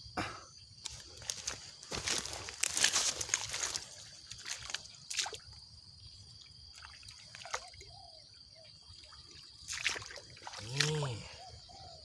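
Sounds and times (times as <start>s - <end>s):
water sloshing: 9.2s - 11.4s
fish thrashing splashes: 9.7s - 11.2s.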